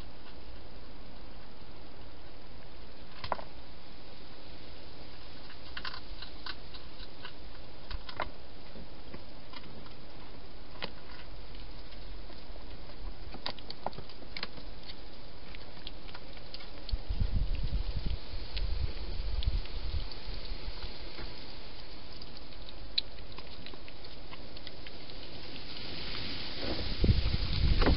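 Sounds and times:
steady hiss: 0:00.0 - 0:11.1, 0:17.0 - 0:27.9
hedgehog crunching food: 0:05.0 - 0:27.9.

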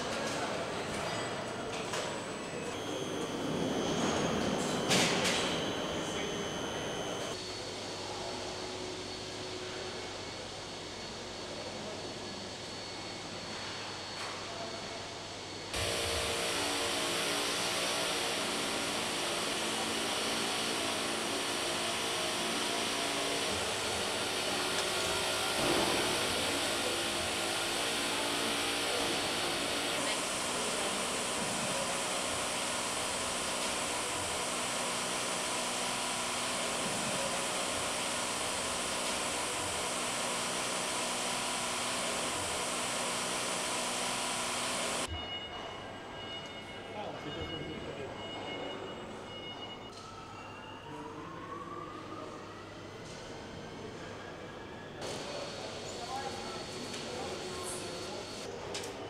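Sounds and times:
factory machinery whirring: 0:00.0 - 0:45.2, 0:55.0 - 0:59.0
steady high tones: 0:02.7 - 0:07.4.

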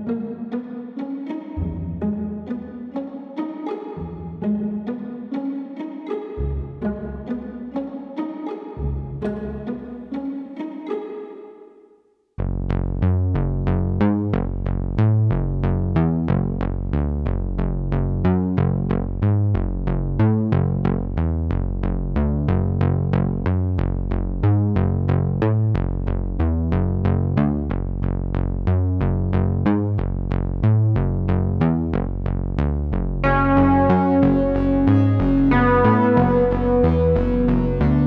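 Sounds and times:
electronic synthesizer music: 0:33.2 - 0:38.0.

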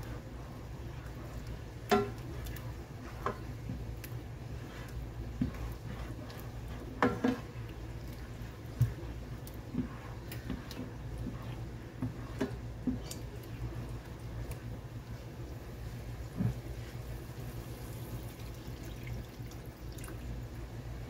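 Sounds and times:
spatula stirring thick sauce: 0:00.0 - 0:18.4
steady low hum: 0:00.0 - 0:21.0
spatula knocking against pan: 0:01.9 - 0:02.2.

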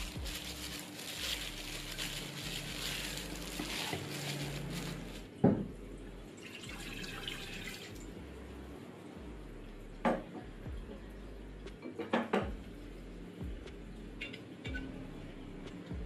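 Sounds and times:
plastic glove rustling: 0:00.0 - 0:05.4
water pouring into metal pot: 0:06.4 - 0:08.1.

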